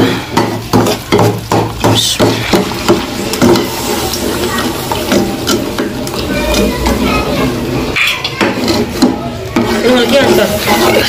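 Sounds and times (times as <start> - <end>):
hot mixture hissing while stirred: 0.0 - 11.0
metal spoon scraping steel bowl: 8.0 - 11.0.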